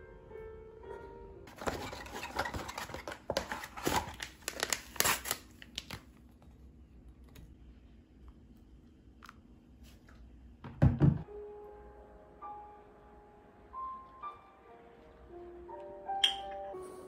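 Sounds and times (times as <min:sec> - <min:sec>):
packaging rustling and tearing: 0:01.5 - 0:06.1.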